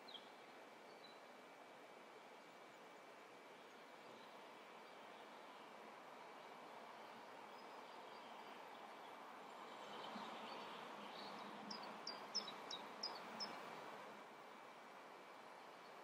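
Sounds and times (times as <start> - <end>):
faint background noise: 0.0 - 16.0
bird chirping: 10.4 - 13.6.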